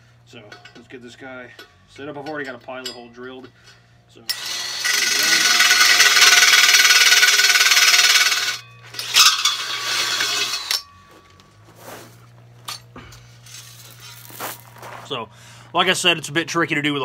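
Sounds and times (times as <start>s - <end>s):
drill hole saw grinding steel: 4.3s - 10.9s.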